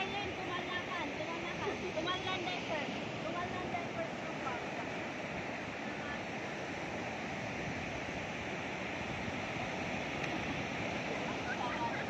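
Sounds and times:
ocean surf breaking on beach: 0:00.0 - 0:12.0.

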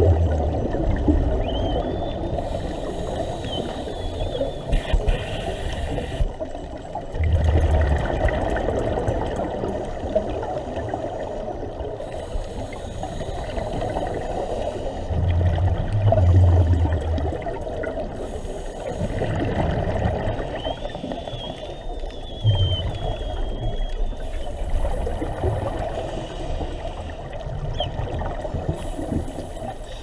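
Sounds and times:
regulator exhaust bubbles rumbling: 0:00.0 - 0:02.0, 0:07.1 - 0:09.9
faint wavering whistle: 0:01.3 - 0:04.7, 0:20.4 - 0:24.6
underwater hiss: 0:02.2 - 0:06.8, 0:10.3 - 0:27.4, 0:28.2 - 0:30.0.

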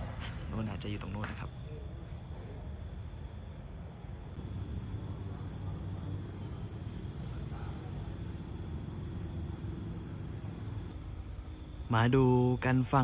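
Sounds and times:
insects chirring: 0:00.4 - 0:13.0
continuous low rumble: 0:04.2 - 0:11.9.

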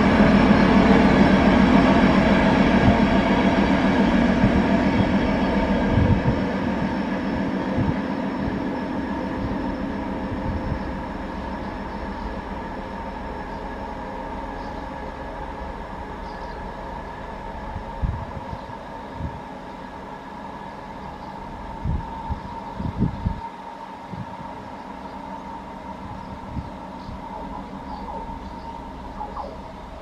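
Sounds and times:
diesel locomotive engine drone: 0:00.0 - 0:30.0
rumble of train coaches: 0:00.0 - 0:30.0.

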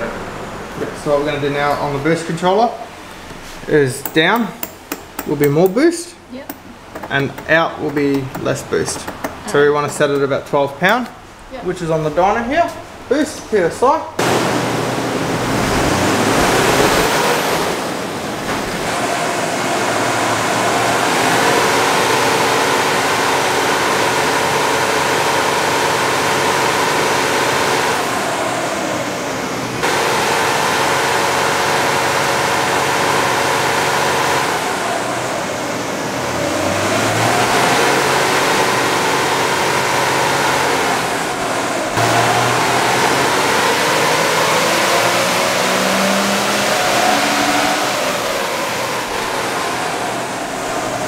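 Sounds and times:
diesel engine under load: 0:00.0 - 0:13.2, 0:14.1 - 0:51.0
steady rush of noise: 0:11.5 - 0:22.5.

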